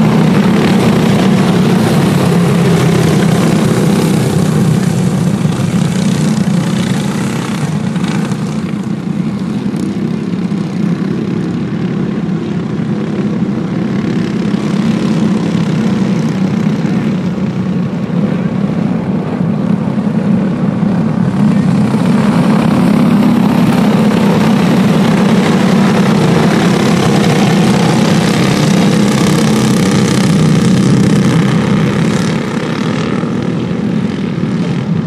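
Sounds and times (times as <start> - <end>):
go-kart engines buzzing: 0.0 - 35.0.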